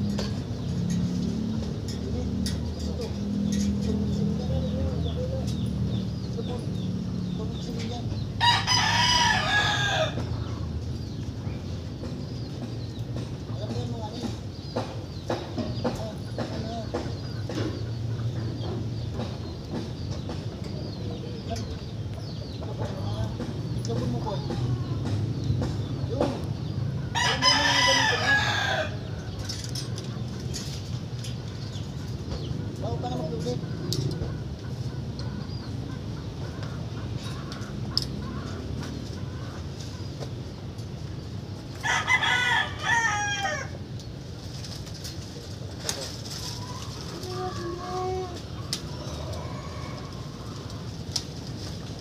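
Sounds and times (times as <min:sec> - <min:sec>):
rooster crowing: 0:08.4 - 0:10.3, 0:27.1 - 0:29.0, 0:41.8 - 0:43.8, 0:49.2 - 0:50.6.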